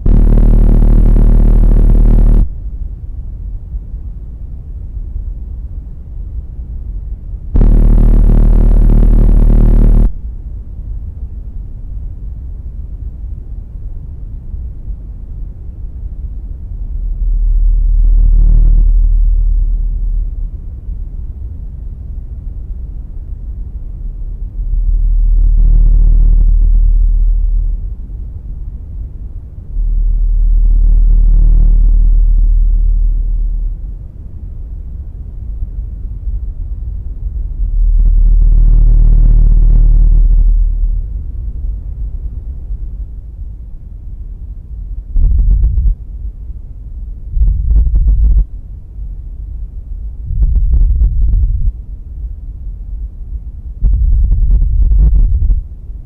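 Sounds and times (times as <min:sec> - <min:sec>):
rapid ticking pulses: 0:00.0 - 0:02.6, 0:07.6 - 0:10.2
deep synthesizer drone: 0:00.0 - 0:02.8, 0:07.6 - 0:10.4, 0:16.8 - 0:20.6, 0:24.5 - 0:28.2, 0:29.7 - 0:33.9, 0:37.4 - 0:41.7.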